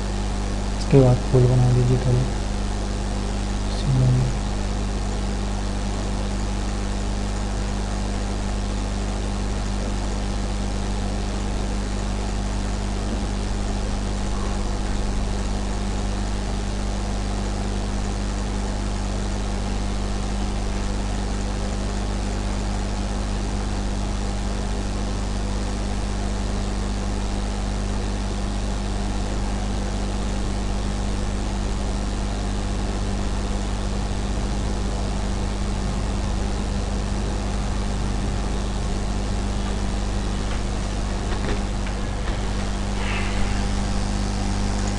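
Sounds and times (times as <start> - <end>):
low hum: 29.8 - 44.9
hiss: 42.6 - 44.9.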